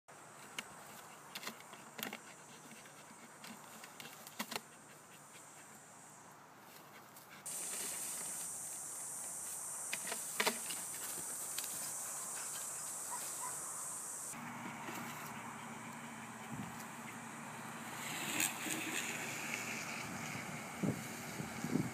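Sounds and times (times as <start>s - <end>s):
twigs and leaves rustling: 0.3s - 5.8s, 6.6s - 17.2s
high insect drone: 7.5s - 21.9s.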